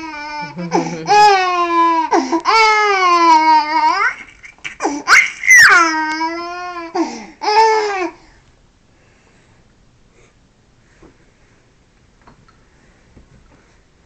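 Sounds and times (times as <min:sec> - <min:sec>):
baby laughing: 0:00.0 - 0:01.8, 0:03.4 - 0:06.6.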